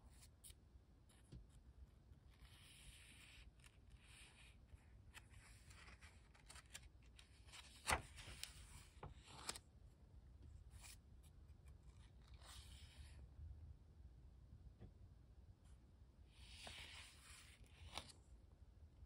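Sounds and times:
paper page turning: 2.3s - 9.6s, 16.4s - 18.2s
page flapping: 5.2s - 9.6s.

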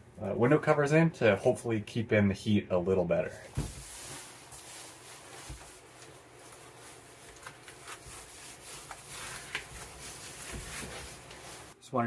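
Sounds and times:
heater fan whirring: 0.0s - 12.0s
foil insulation crinkling: 3.6s - 11.8s.

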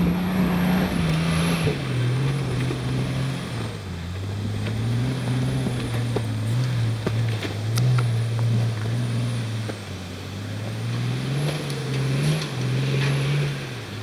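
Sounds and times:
knocks and rattles from ruts: 0.0s - 9.9s
engine droning at low revs: 0.0s - 14.0s.

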